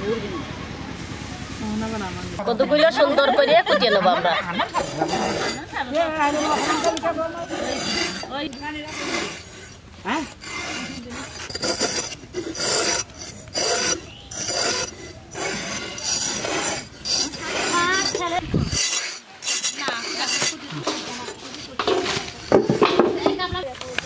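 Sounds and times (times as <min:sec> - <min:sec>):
gourd skin scraped on blade: 0:04.7 - 0:22.8.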